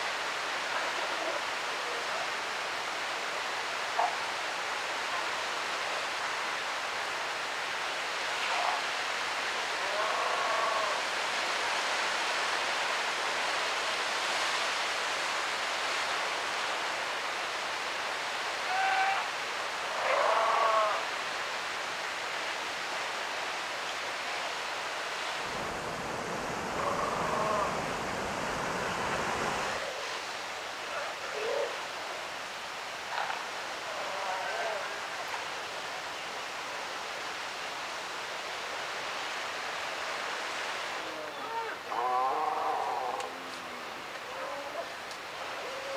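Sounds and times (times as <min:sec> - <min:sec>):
surf washing over rocks: 0:00.0 - 0:45.9
sea lions bleating: 0:20.0 - 0:21.1, 0:26.7 - 0:28.0.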